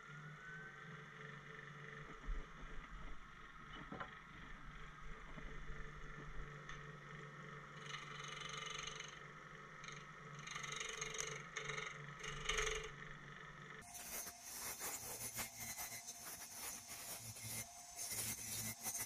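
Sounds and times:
wood lathe running: 1.0s - 19.0s
gouge scraping wood: 13.8s - 19.0s.

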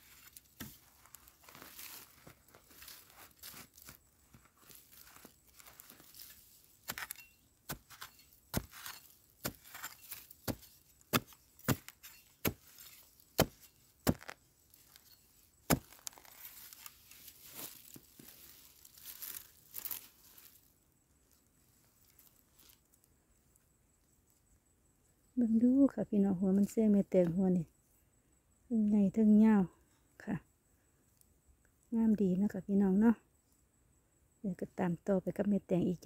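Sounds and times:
dry leaves and soil rustling: 0.0s - 23.1s
digging tool striking earth: 0.1s - 18.2s.

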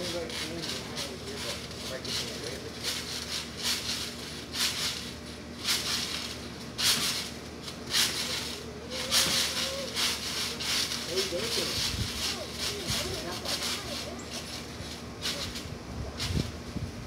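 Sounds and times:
trampoline bouncing swish: 0.0s - 17.0s.

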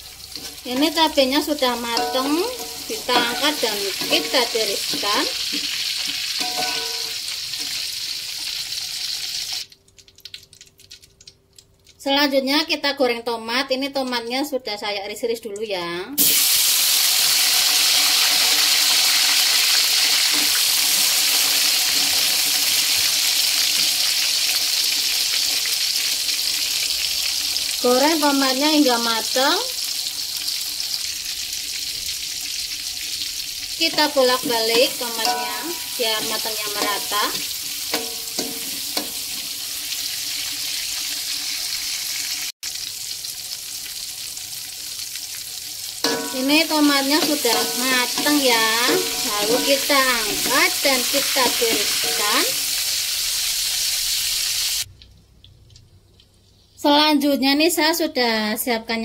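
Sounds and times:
tomatoes sizzling in hot oil: 0.0s - 11.4s, 16.1s - 55.0s
metal spatula scraping a wok: 0.3s - 1.0s, 1.7s - 7.8s, 19.8s - 22.4s, 34.4s - 39.4s, 46.0s - 52.9s.

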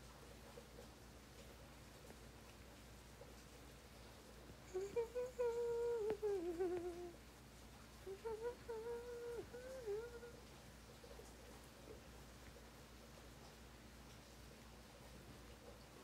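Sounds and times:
woman humming a tune: 4.6s - 7.2s, 8.0s - 10.5s.

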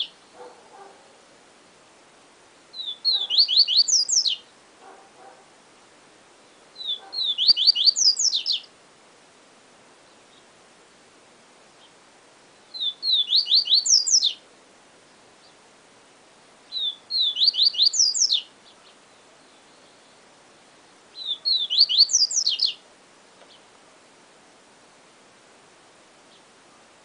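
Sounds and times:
bird singing high falling notes: 6.8s - 8.7s, 12.7s - 14.4s, 16.7s - 18.5s, 21.1s - 22.8s.

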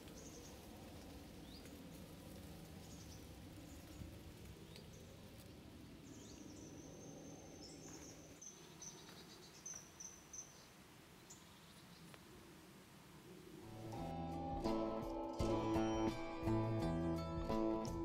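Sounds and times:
high-pitched piping: 13.7s - 18.0s.

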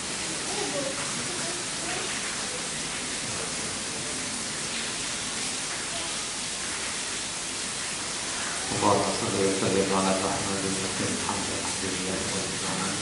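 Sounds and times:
steady rushing hiss: 6.6s - 13.0s.

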